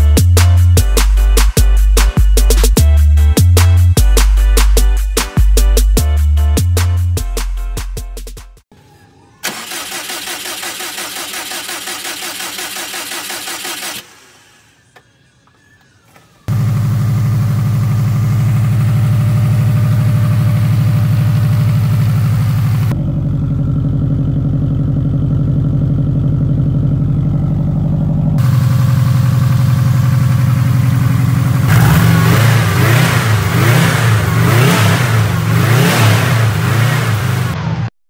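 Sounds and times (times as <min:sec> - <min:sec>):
car engine running: 0:10.8 - 0:37.9
engine revving: 0:16.5 - 0:38.0.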